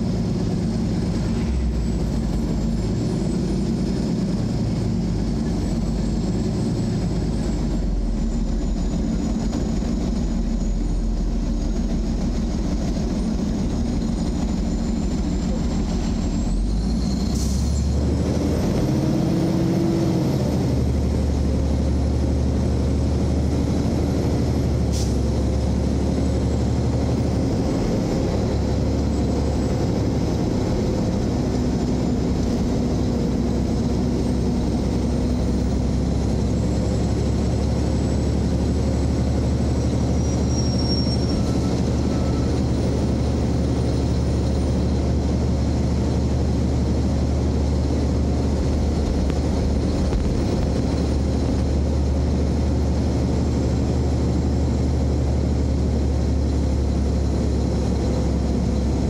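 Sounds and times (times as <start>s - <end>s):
car engine and road noise: 0.0s - 59.0s.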